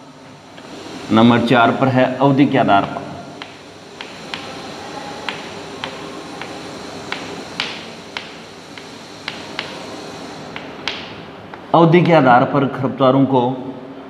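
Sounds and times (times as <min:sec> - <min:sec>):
faint hiss: 0:00.0 - 0:12.3
chalk tapping on blackboard: 0:02.8 - 0:11.7.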